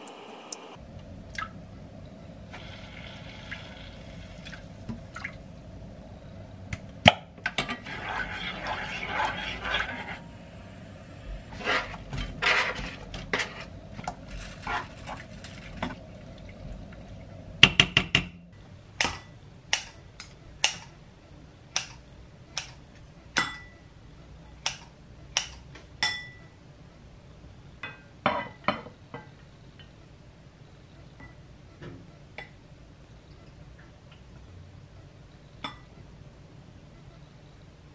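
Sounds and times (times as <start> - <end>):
wooden spoon scraping pan: 7.5 - 10.3, 11.5 - 15.9.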